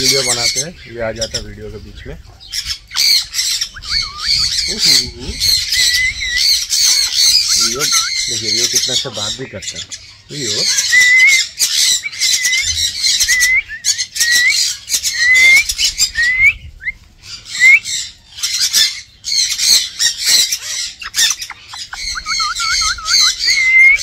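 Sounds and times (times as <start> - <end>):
cockatoo screeching squawks: 2.5 - 9.1, 17.5 - 24.0.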